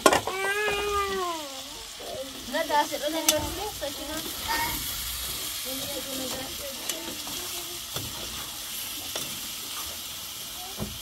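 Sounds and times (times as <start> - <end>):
potatoes sizzling in a pot: 0.0 - 11.0
metal spatula scraping a pot: 4.2 - 10.0.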